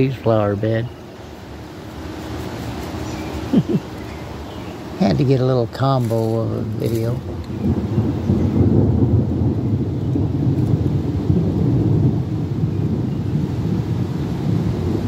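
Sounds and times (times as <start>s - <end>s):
rolling thunder rumble: 4.8s - 15.0s.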